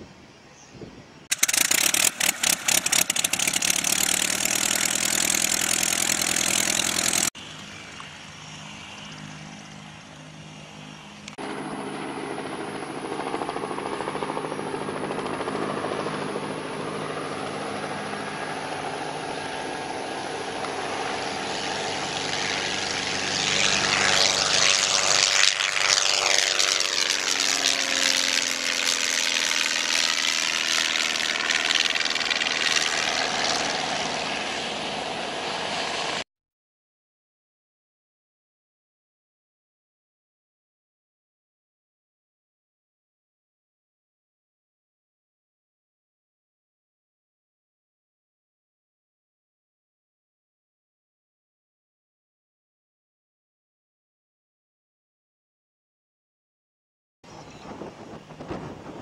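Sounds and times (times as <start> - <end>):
propeller airplane engine: 1.2 - 36.3, 57.3 - 59.0.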